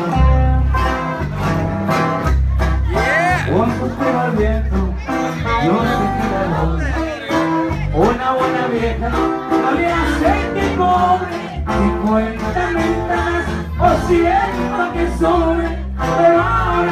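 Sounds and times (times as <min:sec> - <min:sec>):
man singing into a microphone: 0:00.0 - 0:00.7, 0:02.9 - 0:16.9
live band playing: 0:00.0 - 0:16.9.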